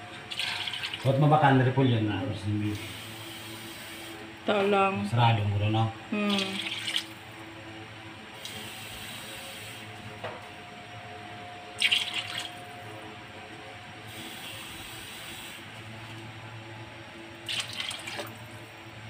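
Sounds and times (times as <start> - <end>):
water running: 0.3 - 1.4, 6.3 - 7.3, 11.8 - 12.8, 17.4 - 18.8.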